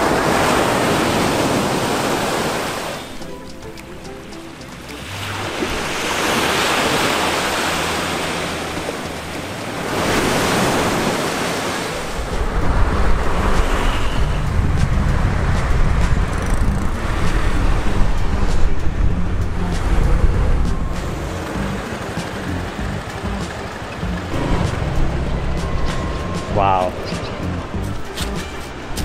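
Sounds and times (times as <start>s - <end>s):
ocean waves washing on beach: 0.0s - 29.0s
wind rumble on microphone: 12.0s - 23.4s.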